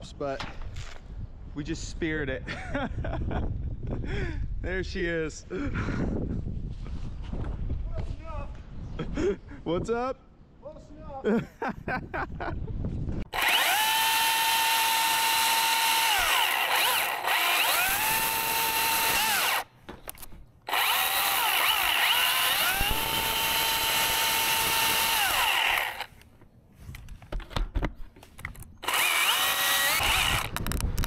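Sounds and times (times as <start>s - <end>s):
battery chainsaw cutting wood: 13.3s - 19.7s, 20.6s - 26.2s, 28.8s - 31.0s.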